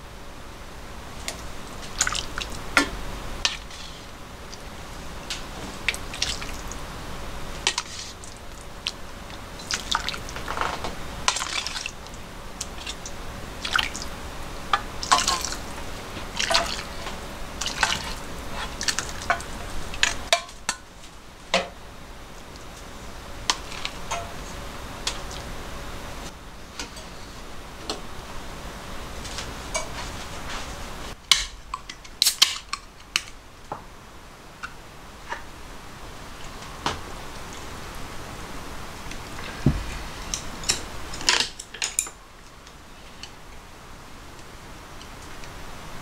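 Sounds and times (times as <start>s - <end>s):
faint steady hum: 0.0s - 46.0s
broth pouring and splashing: 1.7s - 5.0s, 5.6s - 6.8s, 7.5s - 10.5s, 11.2s - 20.4s.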